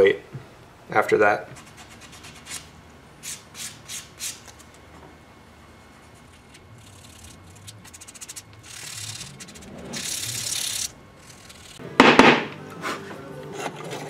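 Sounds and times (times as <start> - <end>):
sandpaper sanding wood: 6.4 - 11.8
faint background music: 11.8 - 14.0.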